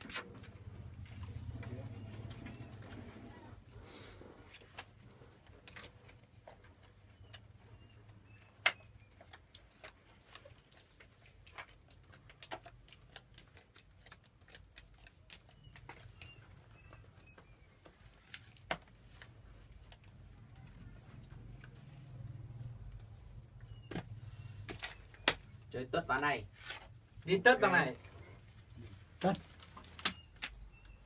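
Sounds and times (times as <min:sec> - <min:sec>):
faint bird chirps: 0:15.5 - 0:18.3, 0:23.6 - 0:25.5, 0:30.1 - 0:31.0.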